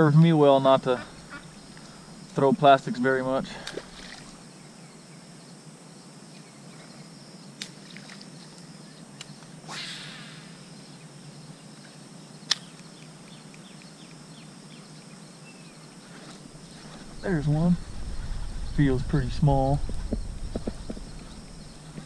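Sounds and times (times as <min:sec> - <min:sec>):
outdoor pond ambience: 0:00.0 - 0:22.0
faint bird chirps: 0:06.3 - 0:22.0
sharp clicks: 0:12.5 - 0:14.2.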